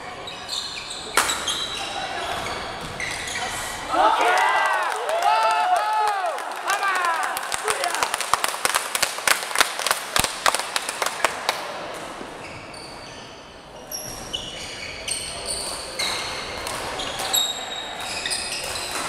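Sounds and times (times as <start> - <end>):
shoes squeaking on floor: 0.0 - 3.8, 12.4 - 19.0
hand claps: 4.7 - 11.8.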